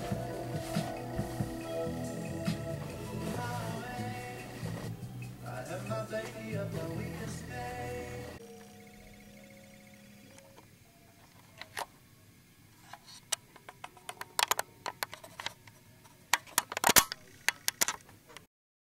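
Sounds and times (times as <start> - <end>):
music notes: 0.0 - 11.3.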